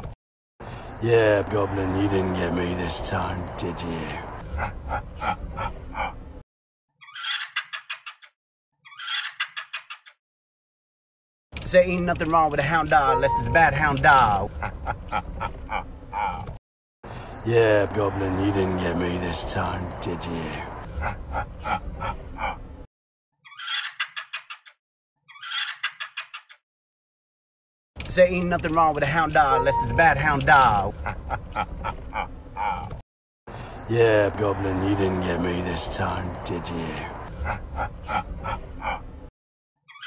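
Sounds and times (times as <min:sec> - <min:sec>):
man laughing: 0:01.1 - 0:06.3, 0:13.1 - 0:16.5, 0:17.5 - 0:22.8, 0:29.4 - 0:33.0, 0:33.9 - 0:39.3.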